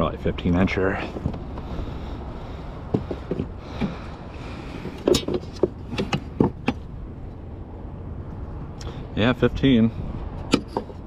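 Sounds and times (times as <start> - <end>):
water around hull: 0.5 - 7.6.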